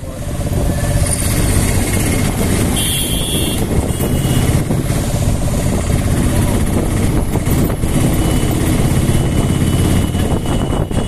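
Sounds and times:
auto-rickshaw engine running: 0.0s - 11.0s
road noise: 0.0s - 11.0s.

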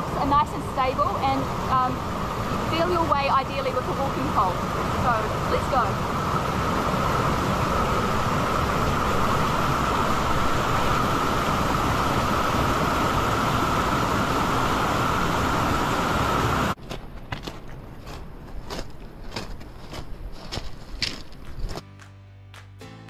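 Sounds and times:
river rapids rushing: 0.0s - 16.8s
footsteps on gravel: 16.8s - 21.9s.

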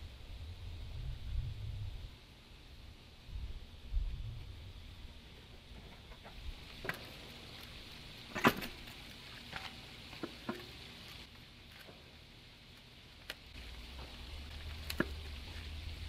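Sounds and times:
faint steady hiss: 0.0s - 16.0s
metal parts clunking and clicking: 8.3s - 10.7s.

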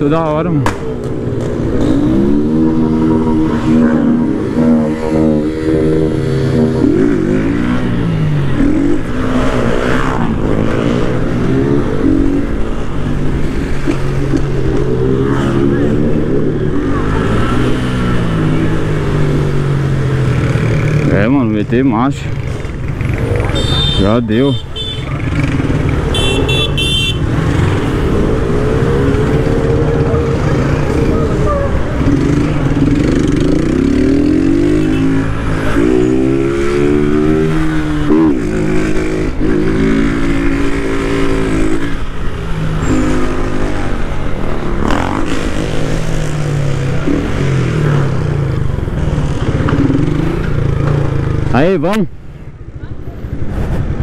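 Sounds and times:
motorcycle engine revving: 0.0s - 21.6s, 22.2s - 51.8s
other motorcycles revving: 0.0s - 52.0s
high vehicle horn beeping: 23.5s - 25.2s, 26.1s - 27.3s.

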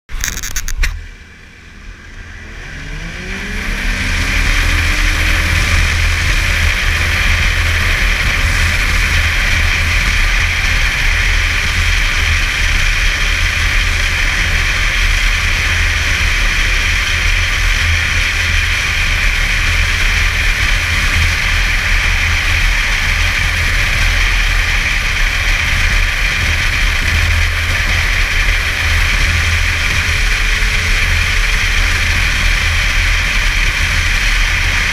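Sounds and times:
snowmobile engine: 0.1s - 34.9s.

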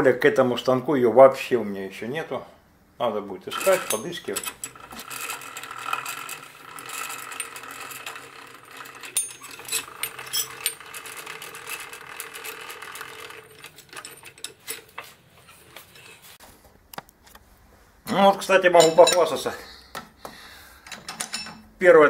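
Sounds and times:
metal clicks and clinks: 3.6s - 16.1s, 20.9s - 21.7s.

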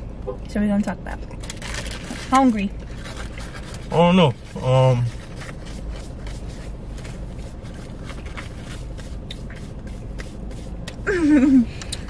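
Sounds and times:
low car cabin hum: 0.0s - 12.0s
sandwich wrapper rustling: 1.4s - 10.8s.

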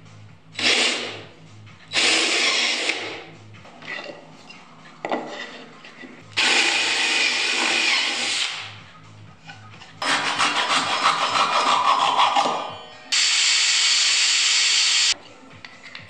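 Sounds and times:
drill boring into hardwood: 1.9s - 3.1s, 6.4s - 8.7s, 13.2s - 15.2s
wood handled on bench: 5.0s - 6.2s.

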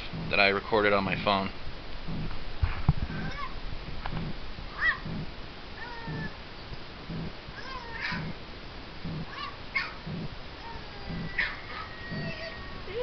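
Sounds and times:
soft low pulse: 0.0s - 13.0s
dog whining: 3.1s - 3.6s, 4.2s - 6.4s, 7.2s - 8.4s, 9.1s - 13.0s.

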